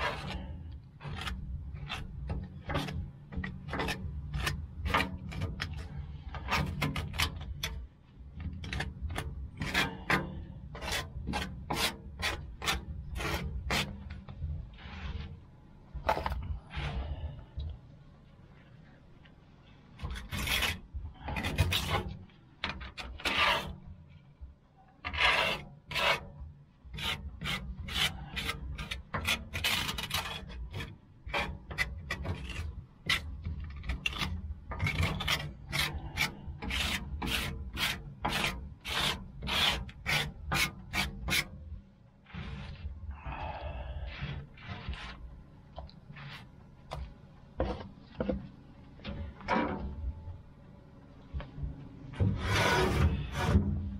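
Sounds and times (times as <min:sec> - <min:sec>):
hand brush scrubbing steel: 0:25.1 - 0:26.3, 0:26.9 - 0:41.6, 0:52.2 - 0:53.8.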